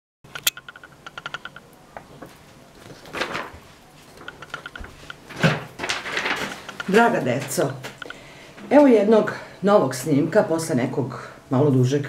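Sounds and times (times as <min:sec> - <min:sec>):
paper rustling: 0:02.0 - 0:08.0.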